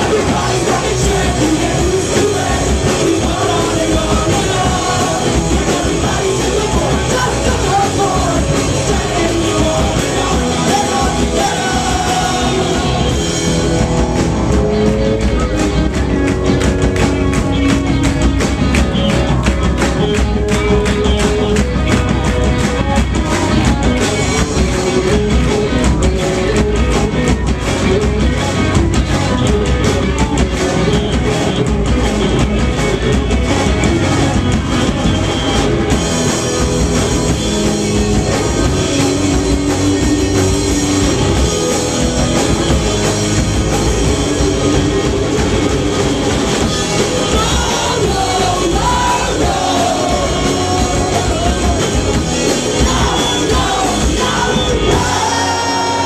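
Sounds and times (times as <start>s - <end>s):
person singing: 0.0s - 13.6s, 46.8s - 56.0s
punk rock band playing live: 0.0s - 56.0s.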